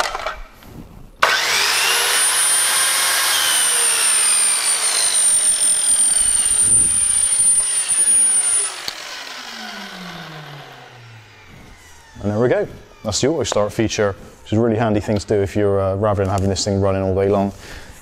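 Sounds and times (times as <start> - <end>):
mitre saw motor: 1.2 - 14.8
workshop vacuum whine: 1.2 - 17.9.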